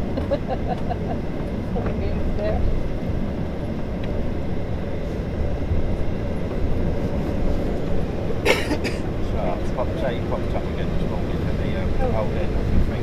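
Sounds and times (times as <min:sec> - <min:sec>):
aircraft cabin low rumble: 0:00.0 - 0:13.0.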